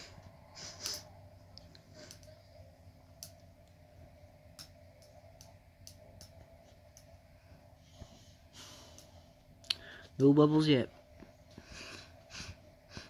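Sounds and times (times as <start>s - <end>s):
faint low hum: 0.0s - 13.0s
faint irregular clicks: 0.7s - 7.3s, 8.8s - 9.8s.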